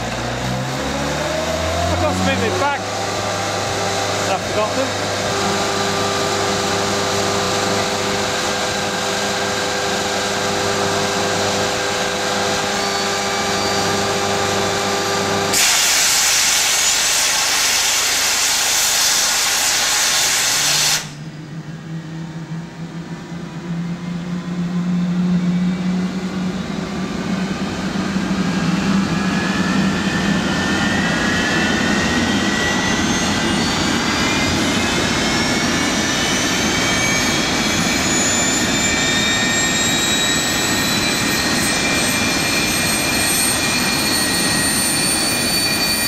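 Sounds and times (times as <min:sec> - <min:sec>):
jet engine winding up: 0:00.0 - 0:46.0
loud starter hiss: 0:15.5 - 0:21.2.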